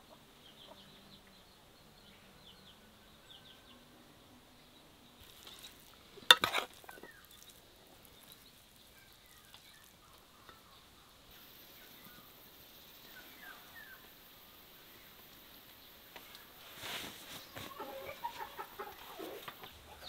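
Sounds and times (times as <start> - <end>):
spoon scraping bowl: 5.2 - 8.5
spoon stirring moist filling: 5.2 - 10.7.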